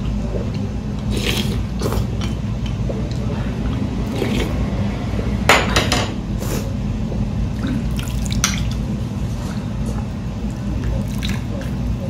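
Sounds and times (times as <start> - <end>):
steady low hum: 0.0 - 12.0
broth splashing and dribbling: 7.6 - 8.9.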